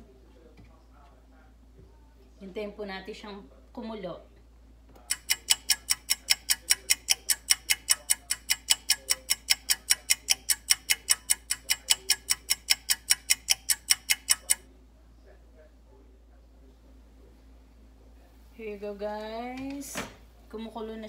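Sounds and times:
rapid even ticking: 0:05.0 - 0:14.6.

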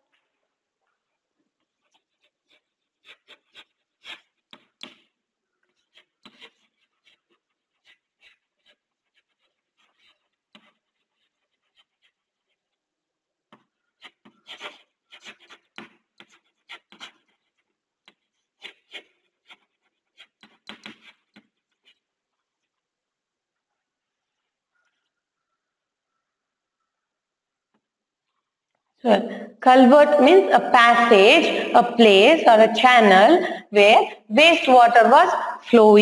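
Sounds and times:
chalk writing on a chalkboard: 0:01.5 - 0:12.9, 0:13.5 - 0:22.9.

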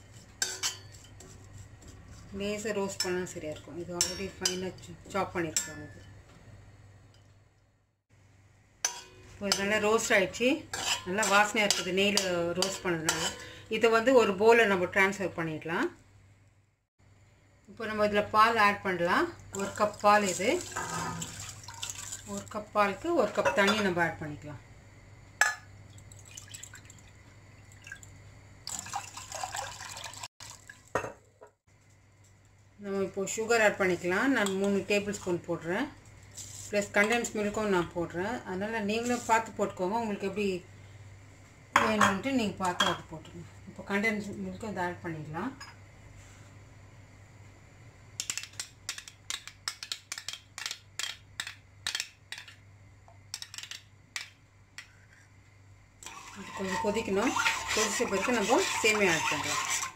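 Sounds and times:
water pouring into saucepan: 0:19.8 - 0:22.4, 0:25.9 - 0:30.9, 0:56.0 - 0:59.9.

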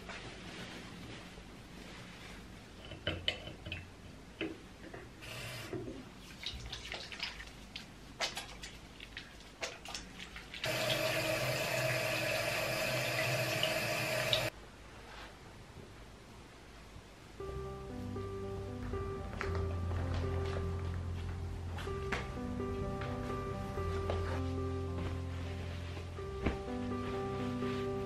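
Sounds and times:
hands lathering: 0:06.4 - 0:10.7.

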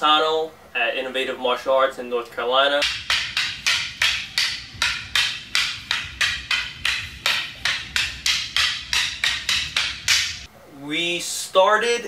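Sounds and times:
fast wood-block-like beat: 0:02.8 - 0:10.5.

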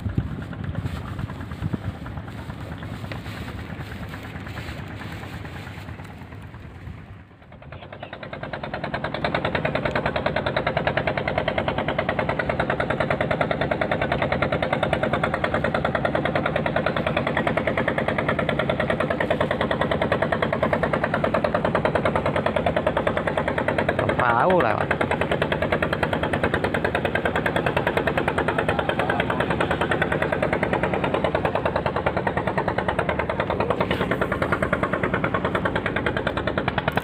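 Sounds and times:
motorboat engine chugging: 0:00.0 - 0:37.0.

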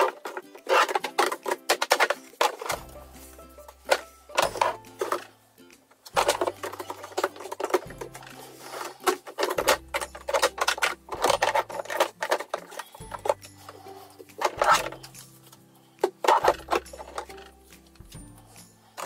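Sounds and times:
plastic bottles clattering: 0:00.0 - 0:05.3, 0:06.0 - 0:18.0
background music with bass line: 0:02.7 - 0:07.2.

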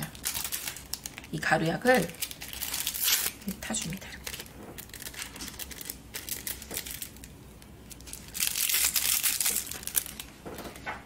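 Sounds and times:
paper sachet crinkling: 0:00.0 - 0:10.8.

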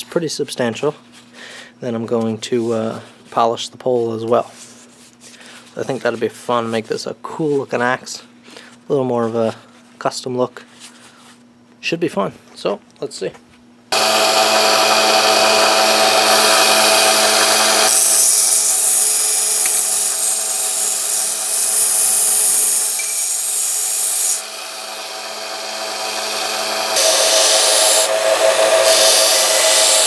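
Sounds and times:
belt sander motor hum: 0:13.9 - 0:30.0
metal grinding on sander belt: 0:14.0 - 0:30.0.

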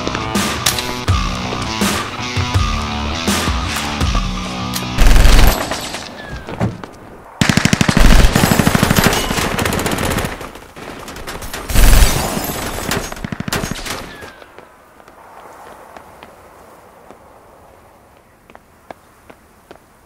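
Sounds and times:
automatic gunfire bursts: 0:05.0 - 0:05.7, 0:07.4 - 0:10.5.

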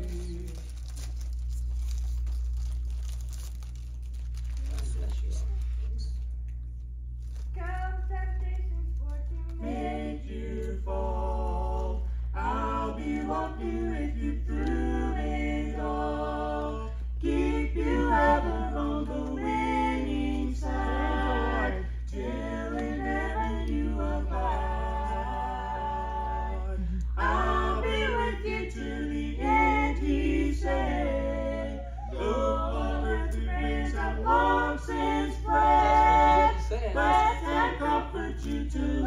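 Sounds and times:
low hum: 0:00.0 - 0:39.0
group singing a cappella: 0:09.5 - 0:39.0.

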